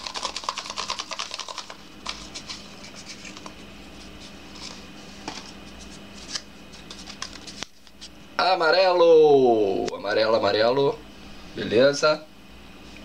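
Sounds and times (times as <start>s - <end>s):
paper slips rustling and clicking: 0.0s - 3.5s
faint steady hum: 0.0s - 13.0s.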